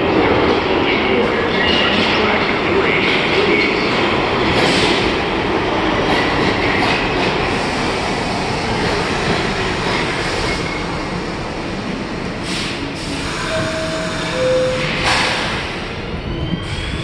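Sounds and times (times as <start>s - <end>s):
subway train pulling in: 0.0s - 17.0s
short hiss of brakes: 12.4s - 13.1s.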